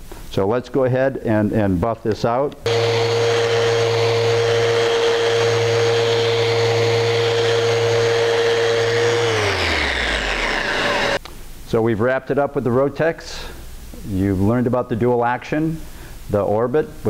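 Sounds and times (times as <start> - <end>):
sander motor hum: 2.7 - 11.2.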